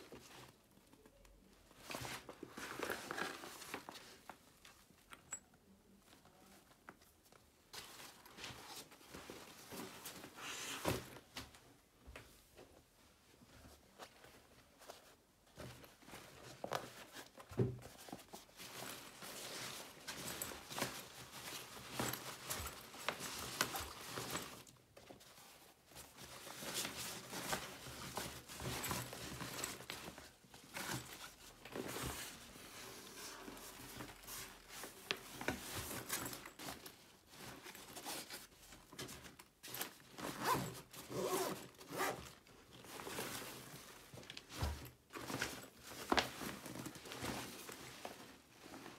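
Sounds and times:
nylon fabric rustling: 0:00.0 - 0:05.0, 0:13.0 - 0:48.9
zippers being pulled: 0:40.2 - 0:42.2.

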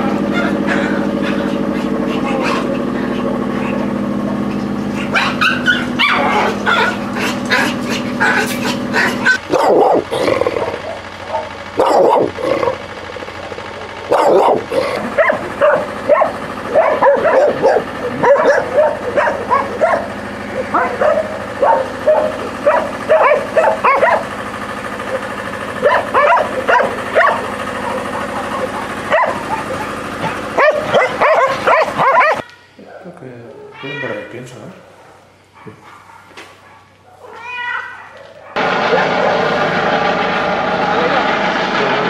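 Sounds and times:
dogs barking: 0:00.0 - 0:32.5, 0:34.8 - 0:39.6
high-pitched yapping: 0:05.0 - 0:12.8, 0:14.1 - 0:24.2, 0:25.8 - 0:32.7, 0:37.1 - 0:39.4.

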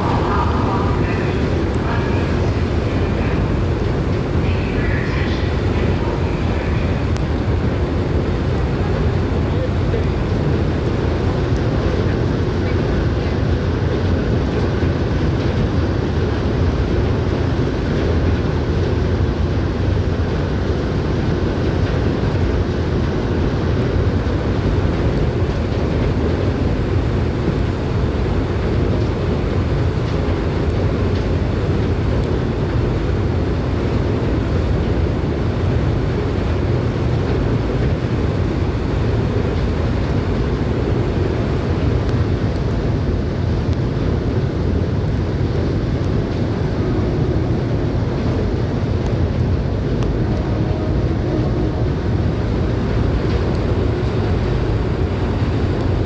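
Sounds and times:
ferry engine rumble: 0:00.0 - 0:56.0
wind on microphone: 0:00.0 - 0:56.0.

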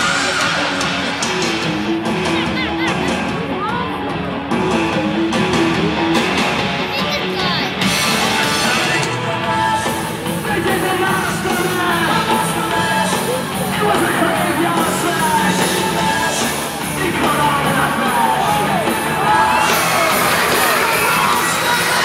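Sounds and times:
loud rock music: 0:00.0 - 0:22.0
crowd yelling and whooping: 0:10.5 - 0:22.0.

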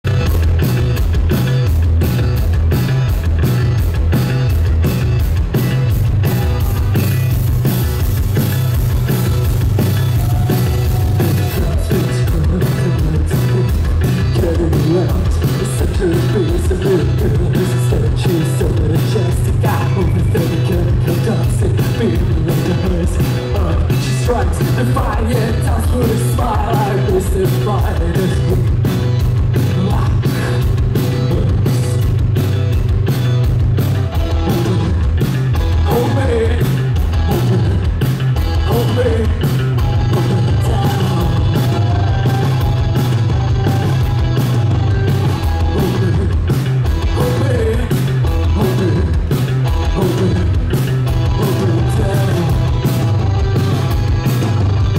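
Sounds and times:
bass guitar: 0:00.0 - 0:54.9
electric guitar: 0:00.0 - 0:54.9
steady drum beat: 0:00.0 - 0:54.9
person singing: 0:10.1 - 0:28.8, 0:29.6 - 0:32.2, 0:34.1 - 0:54.9.

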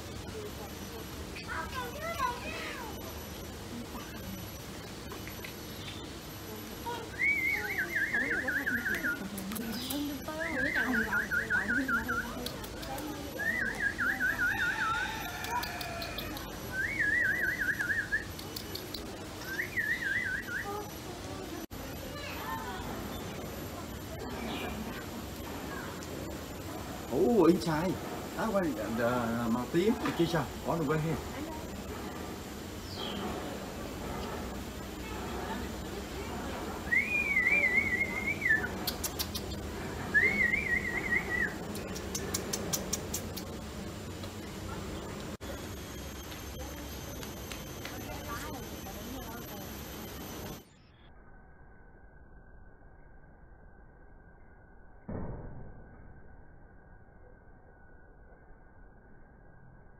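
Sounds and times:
sharp clicks: 0:08.9 - 0:10.2, 0:12.3 - 0:13.3, 0:18.2 - 0:19.6, 0:38.6 - 0:39.7, 0:41.6 - 0:44.4, 0:46.1 - 0:48.4
warbling whistles: 0:13.3 - 0:18.4, 0:19.4 - 0:20.9, 0:36.8 - 0:42.8
high warbling whistle: 0:36.8 - 0:39.0, 0:40.0 - 0:41.7.

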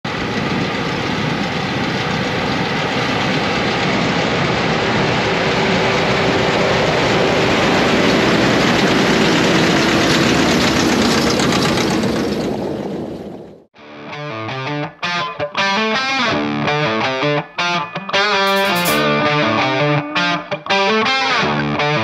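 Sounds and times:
tractors passing by: 0:00.1 - 0:13.6.

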